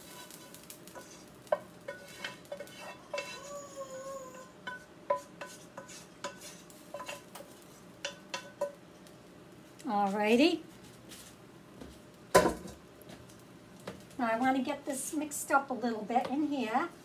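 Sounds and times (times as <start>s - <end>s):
wooden spoon scraping frying pan: 0.0s - 3.5s, 4.6s - 8.8s.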